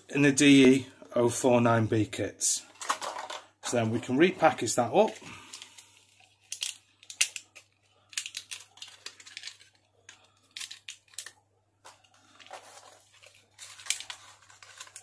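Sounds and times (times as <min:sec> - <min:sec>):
plastic packaging crinkling: 0:05.0 - 0:15.0.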